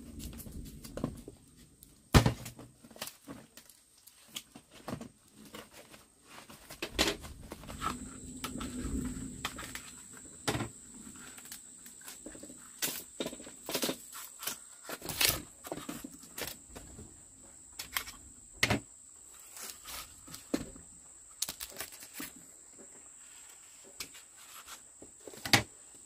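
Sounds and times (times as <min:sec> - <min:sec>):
bamboo cracking: 0:02.1 - 0:05.7, 0:11.2 - 0:16.9, 0:17.8 - 0:22.5.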